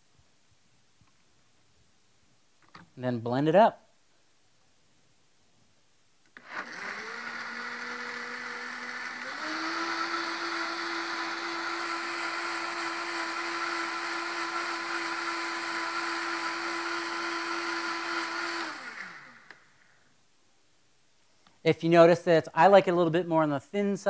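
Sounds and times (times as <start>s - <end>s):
blender motor blending: 6.4s - 19.7s.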